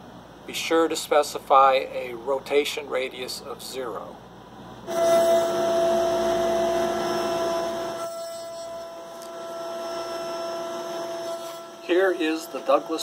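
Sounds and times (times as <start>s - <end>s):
electric motor whining: 4.9s - 13.0s.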